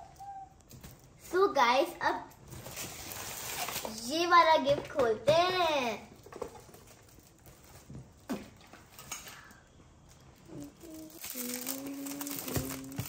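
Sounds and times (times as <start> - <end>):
gift wrapping crinkling: 2.4 - 4.1, 6.2 - 13.0.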